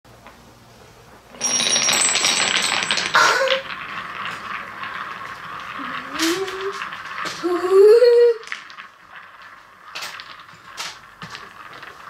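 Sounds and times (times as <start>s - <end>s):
wooden balls clattering into bowl: 1.3s - 12.0s.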